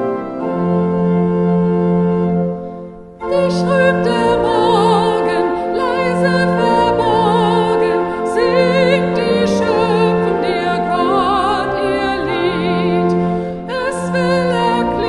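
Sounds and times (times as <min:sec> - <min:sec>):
held accompaniment chords: 0:00.0 - 0:15.0
woman singing hymn: 0:03.2 - 0:15.0.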